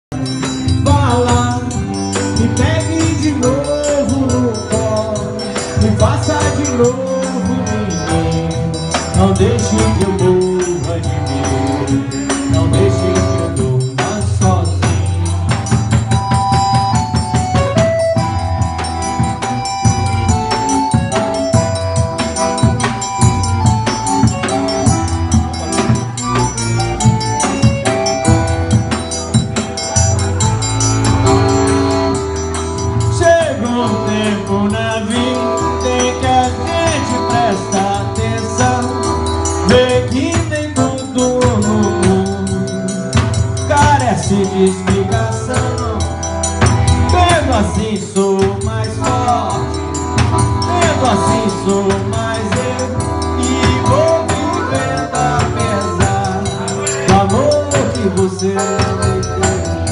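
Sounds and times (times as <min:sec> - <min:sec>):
band instruments: 0:00.1 - 0:59.9
drum beaten with a stick: 0:00.1 - 0:59.9
man singing: 0:00.5 - 0:15.7, 0:32.9 - 0:50.0, 0:50.6 - 0:59.9.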